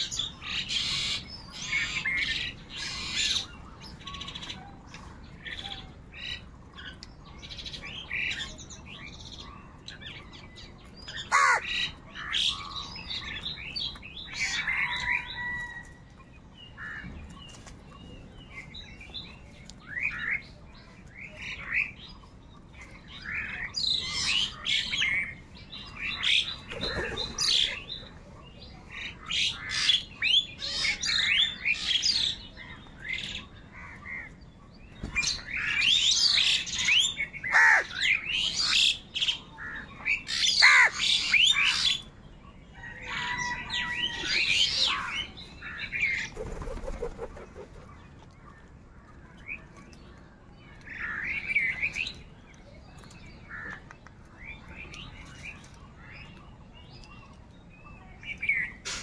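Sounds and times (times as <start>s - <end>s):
birds chirping: 0.0s - 59.0s
crows squawking: 11.2s - 12.9s, 37.5s - 38.0s, 39.6s - 41.4s.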